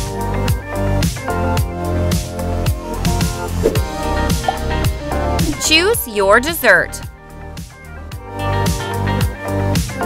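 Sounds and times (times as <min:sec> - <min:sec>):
upbeat background music: 0:02.9 - 0:10.0.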